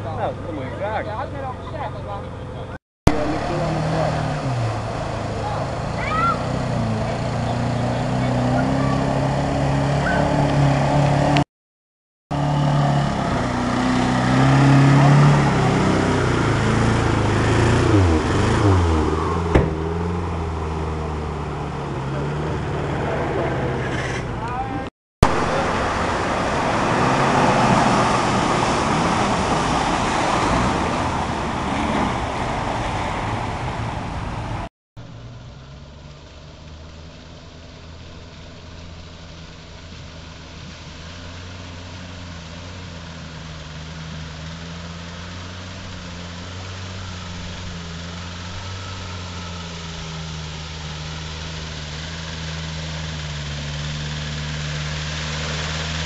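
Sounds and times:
engine running at low revs: 0.0s - 11.5s, 12.3s - 56.0s
engine working hard: 0.0s - 11.5s, 12.3s - 56.0s.

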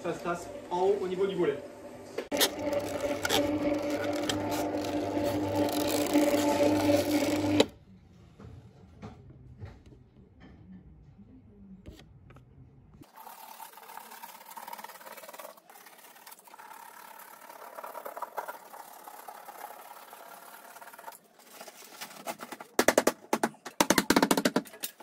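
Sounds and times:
roller-shutter motor humming: 1.6s - 7.7s.

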